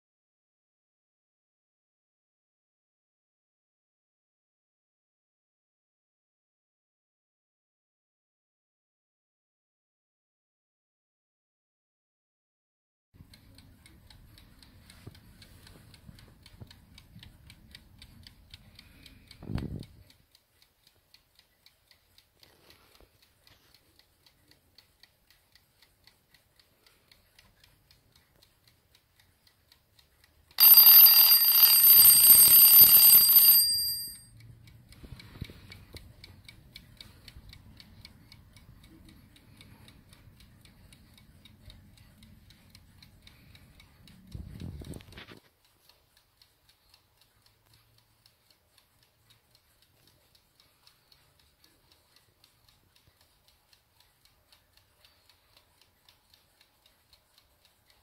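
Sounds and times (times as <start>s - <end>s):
alarm clock ticking: 13.2s - 58.0s
alarm clock bell ringing: 30.6s - 34.4s.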